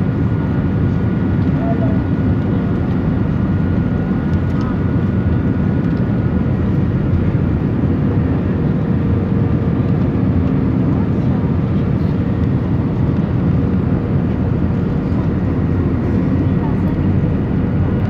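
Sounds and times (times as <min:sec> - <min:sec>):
airliner cabin engine noise: 0:00.0 - 0:18.0.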